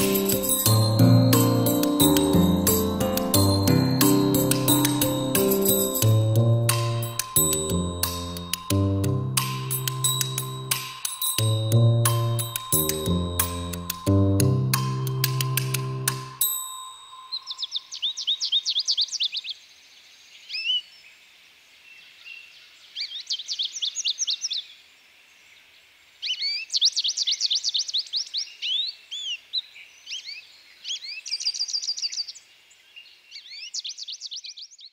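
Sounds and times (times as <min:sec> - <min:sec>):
finch twittering chirps: 0:17.2 - 0:19.6.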